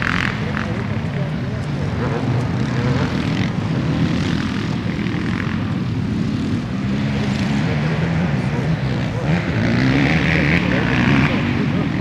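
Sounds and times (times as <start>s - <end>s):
dirt bike engines revving: 0.0s - 12.0s.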